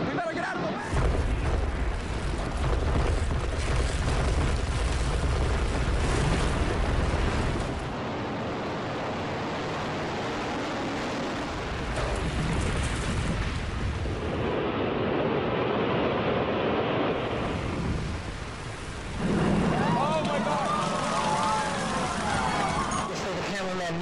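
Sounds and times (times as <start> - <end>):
roar of falling debris: 0.9 - 8.0, 11.4 - 14.8, 17.2 - 23.1
deep rumble: 0.9 - 23.1.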